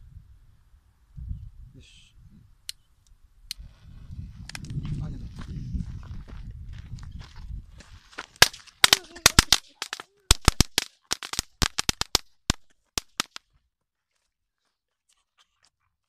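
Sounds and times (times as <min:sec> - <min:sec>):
firecrackers banging: 0:08.4 - 0:13.4.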